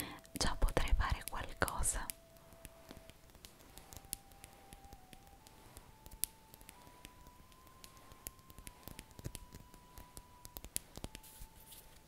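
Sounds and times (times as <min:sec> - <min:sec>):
brush rustling on microphone: 0:05.4 - 0:06.0, 0:09.8 - 0:12.0.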